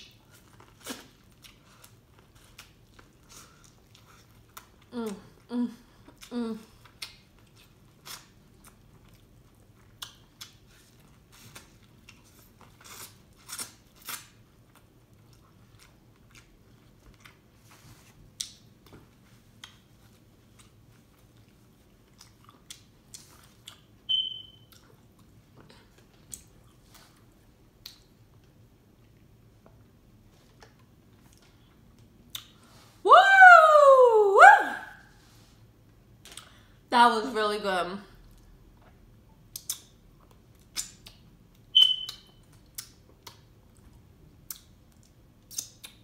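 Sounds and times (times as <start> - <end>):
person chewing food: 0.0 - 32.7, 38.2 - 46.0
brief high squeak: 41.8 - 42.1.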